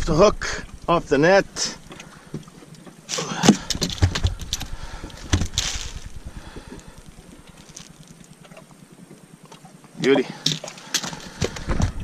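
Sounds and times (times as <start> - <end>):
fish flopping and slapping: 1.9 - 12.0
net mesh clicking and rustling: 3.1 - 6.2.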